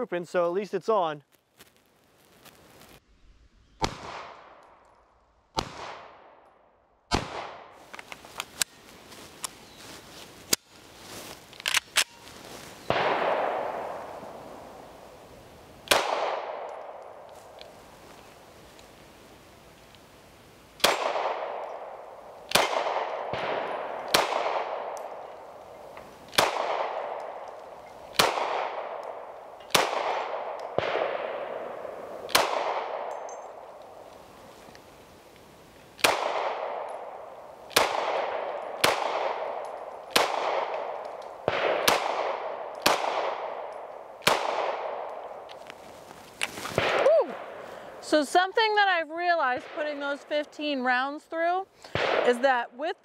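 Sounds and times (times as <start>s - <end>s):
pistol shots with echo: 7.1s - 7.7s, 12.9s - 14.3s, 15.8s - 17.2s, 20.8s - 25.2s, 26.3s - 27.5s, 28.1s - 33.2s, 36.0s - 45.3s, 52.0s - 52.3s.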